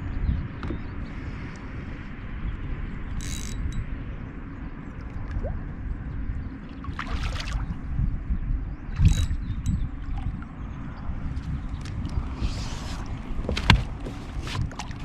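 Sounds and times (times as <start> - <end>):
steady low rumble: 0.0 - 15.0
water splashing against boat: 6.7 - 7.9, 11.4 - 15.0.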